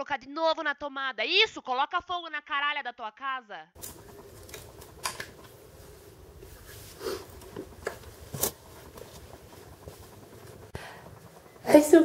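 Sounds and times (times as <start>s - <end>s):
low room hum: 3.8s - 12.0s.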